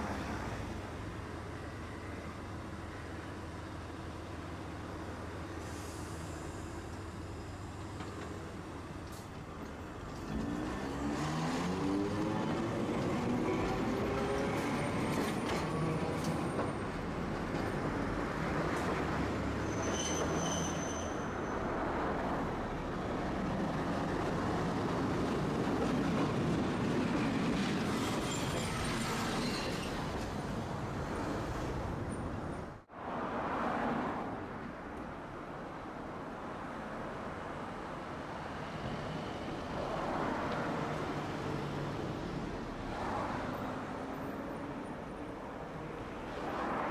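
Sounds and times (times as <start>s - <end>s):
road traffic: 0.0s - 46.9s
streetcar running on tracks: 0.0s - 46.9s
high wheel squeal: 19.4s - 21.8s, 28.0s - 30.3s.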